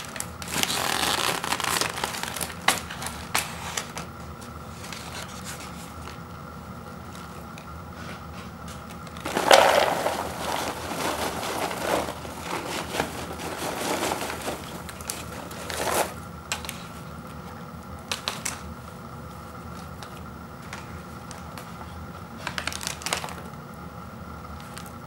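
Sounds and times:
paper bag crinkling: 0:00.0 - 0:06.2, 0:09.1 - 0:17.0, 0:22.4 - 0:23.5
popcorn pouring into a bowl: 0:09.2 - 0:15.0.

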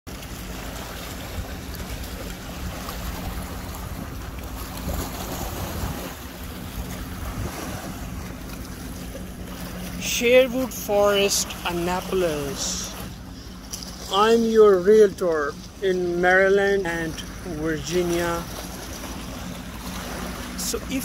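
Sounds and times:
small waves lapping against rocks: 0:00.1 - 0:21.0
wind buffeting microphone: 0:00.4 - 0:10.0.

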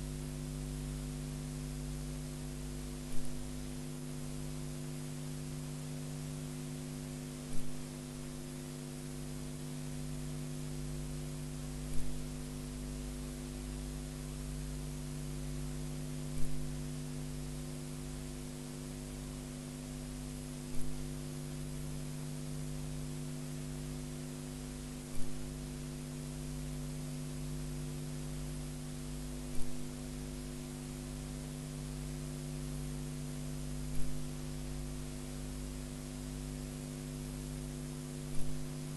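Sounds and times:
mains hum with hiss: 0:00.0 - 0:38.9.

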